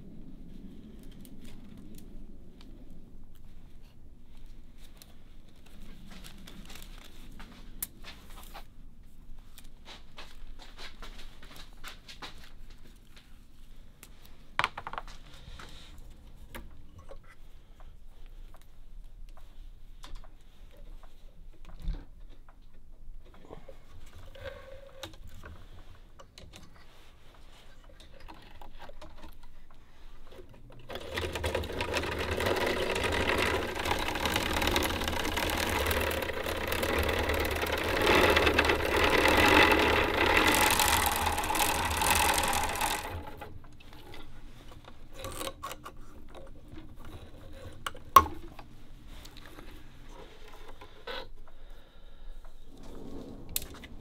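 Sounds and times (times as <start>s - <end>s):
thread-wrapping machine running: 30.8s - 44.3s.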